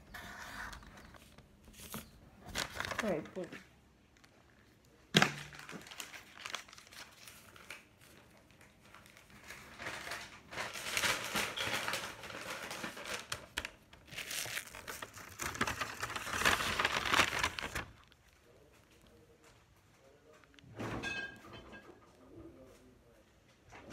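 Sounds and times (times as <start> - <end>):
bag and wrapping crinkling: 0.8 - 4.6, 5.2 - 19.2.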